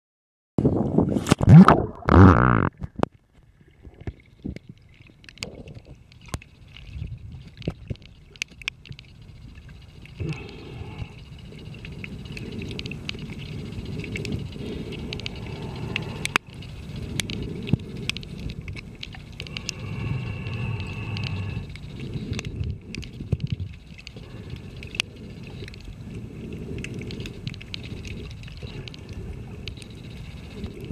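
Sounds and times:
muffled underwater rumble: 0.6s - 30.9s
water splash: 1.1s - 3.0s
sharp underwater clicks: 3.8s - 30.9s.

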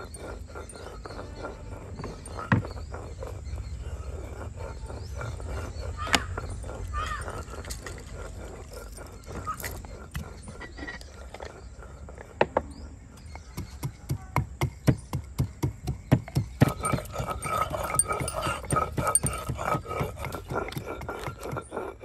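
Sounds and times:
pestle pounding in wooden mortar: 13.2s - 22.0s.

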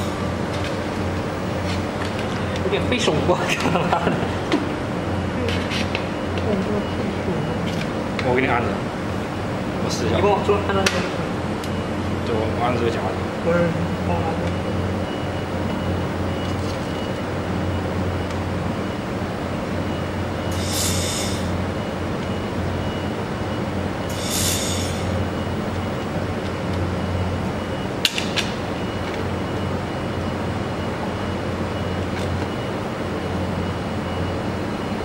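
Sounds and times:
steady machine hum: 0.0s - 35.0s
laser welder hiss: 20.5s - 21.5s, 24.1s - 25.1s.

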